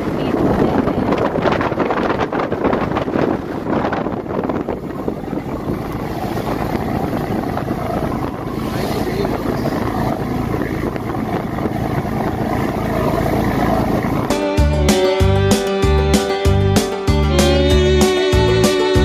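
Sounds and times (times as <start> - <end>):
wind blowing across microphone: 0.0 - 14.5
boat engine running: 0.0 - 19.0.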